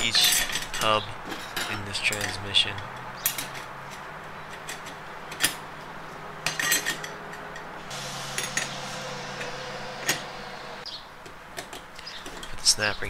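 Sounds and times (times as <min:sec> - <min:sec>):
metal clutch plates clinking: 0:00.0 - 0:08.8.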